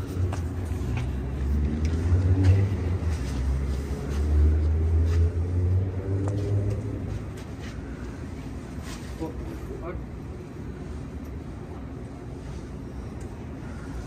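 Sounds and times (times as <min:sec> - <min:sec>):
vehicle engine rumbling past: 0:00.0 - 0:07.6.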